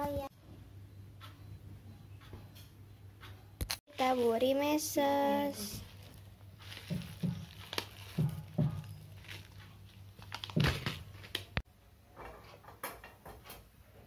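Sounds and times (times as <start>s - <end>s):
cake pan knocking on tabletop: 8.2s - 9.0s.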